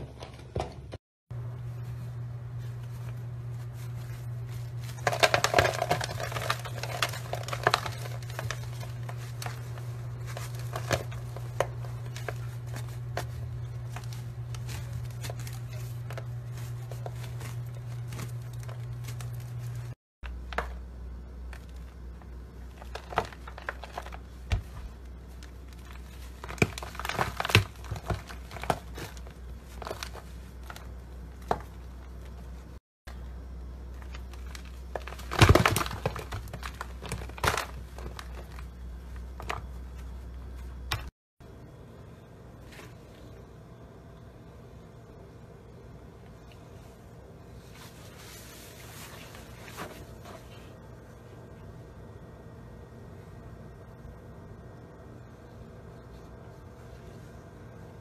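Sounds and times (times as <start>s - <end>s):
steady low hum: 0.0s - 58.0s
dry clumps crunching: 1.3s - 41.1s.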